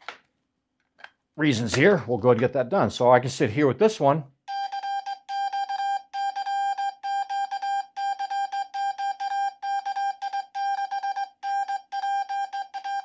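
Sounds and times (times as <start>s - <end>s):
morse code beeps: 4.5s - 13.0s.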